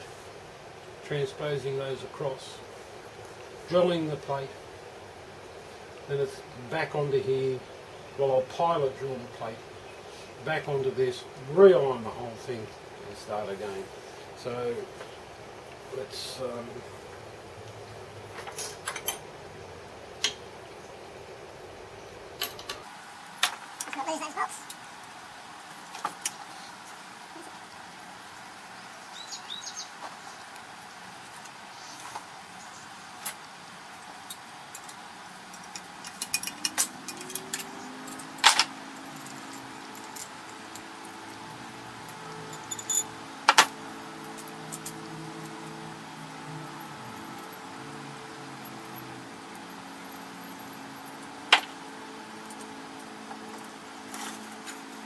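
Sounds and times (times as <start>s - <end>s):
metal parts and tools clicking: 34.3s - 40.9s, 42.1s - 45.0s
faint hum rising in pitch: 34.7s - 55.0s.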